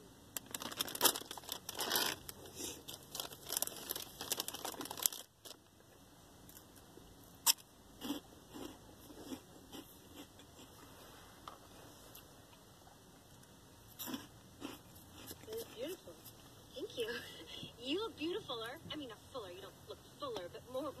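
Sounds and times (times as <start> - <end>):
foil snack bag crinkling: 0.4 - 5.6
chewing: 8.0 - 10.9.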